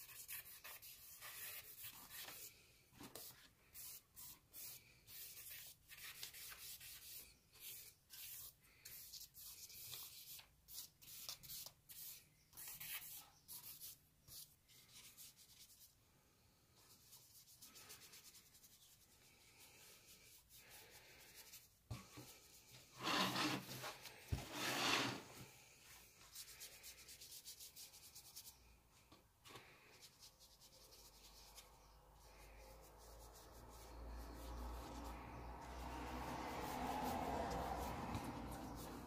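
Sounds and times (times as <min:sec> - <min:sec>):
sketchbook scraping rustle: 0:00.0 - 0:15.8, 0:16.9 - 0:25.4, 0:29.6 - 0:39.0
paintbrush rubbing on paper: 0:00.0 - 0:16.0, 0:16.7 - 0:25.3, 0:25.9 - 0:28.6, 0:29.9 - 0:39.0.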